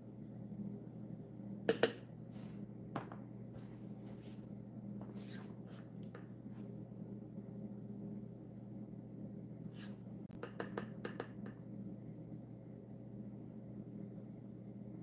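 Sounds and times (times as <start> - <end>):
low steady hum: 0.0 - 15.0
spoon tapping plastic jars: 10.4 - 11.5.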